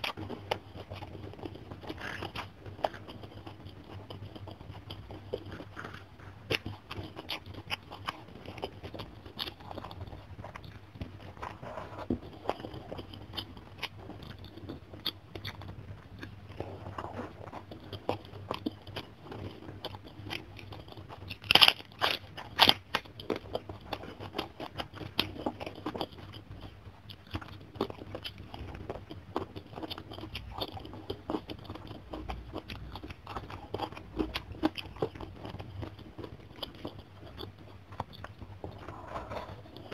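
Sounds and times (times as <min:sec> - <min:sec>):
chewing crunchy cabbage: 0:00.0 - 0:39.9.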